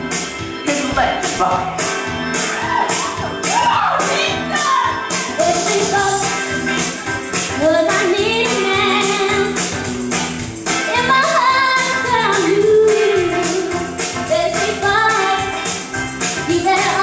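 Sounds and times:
pop backing track: 0.0s - 17.0s
girl singing into a microphone: 7.6s - 9.6s, 10.9s - 15.6s, 16.5s - 17.0s.

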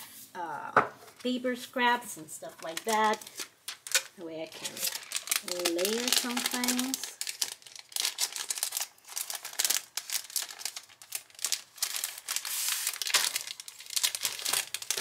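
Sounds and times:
cellophane crinkling: 2.4s - 15.0s.

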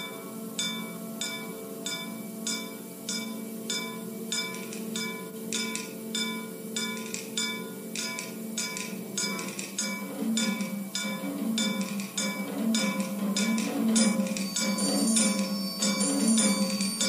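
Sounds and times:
bell-like metallic percussion strikes: 0.0s - 17.0s
wind band sustained chord: 0.0s - 17.0s.

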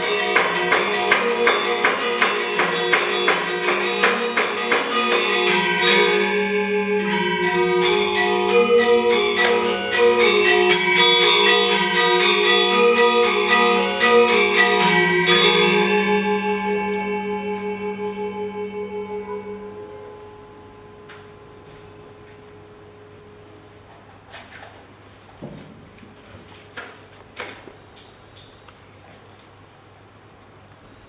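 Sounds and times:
metallophones ringing: 0.0s - 23.7s.

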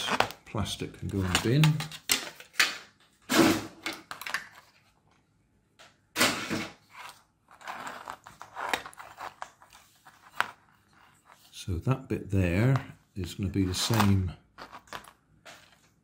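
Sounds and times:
plastic parts rustling and clicking: 13.7s - 15.9s.

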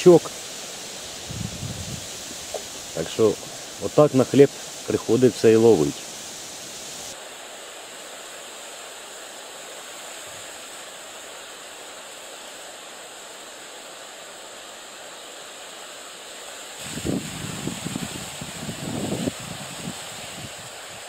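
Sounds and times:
wind hissing through reeds: 0.0s - 21.0s
wind buffeting microphone: 1.2s - 2.4s, 16.8s - 21.0s.

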